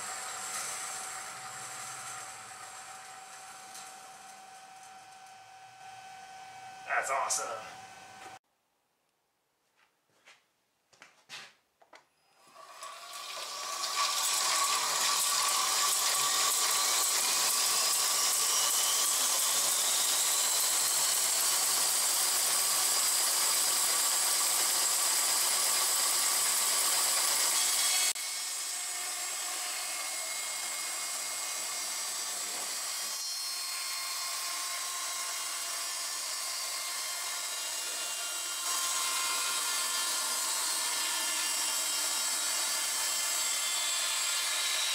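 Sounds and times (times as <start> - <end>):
bandsaw cutting board: 0.0 - 8.4, 12.4 - 44.9.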